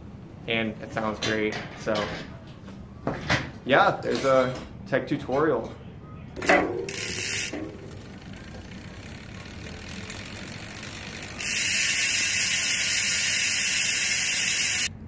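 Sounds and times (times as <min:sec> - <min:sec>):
bicycle freehub ratchet buzz: 0:06.8 - 0:14.9.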